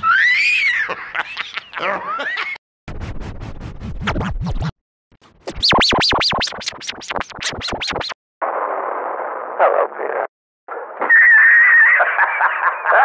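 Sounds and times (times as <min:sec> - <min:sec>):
harsh muffled noisy laugh: 0:00.8 - 0:02.6, 0:11.0 - 0:13.0
pitch-shifted repeated laughing: 0:00.8 - 0:02.6.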